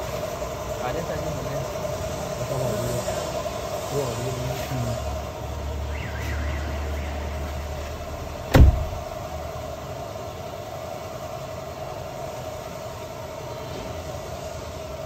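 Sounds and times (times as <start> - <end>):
car cabin hum: 8.2 - 9.3
sharp knock: 8.5 - 9.0.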